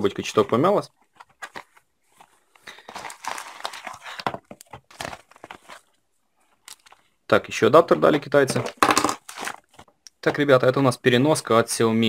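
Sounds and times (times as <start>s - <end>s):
plastic bag rustling and crinkling: 1.0s - 7.0s, 8.4s - 9.9s.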